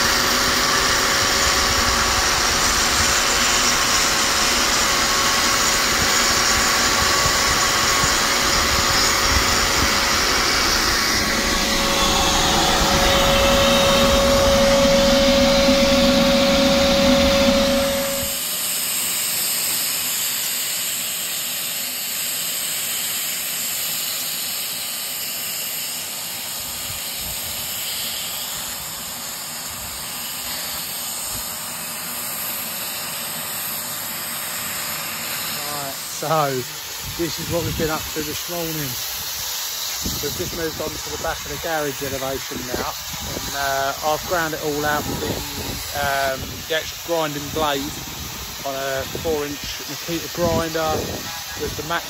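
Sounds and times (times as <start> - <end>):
angle grinder grinding mortar: 0.0 - 18.4, 39.9 - 52.0
steady hiss: 32.5 - 52.0.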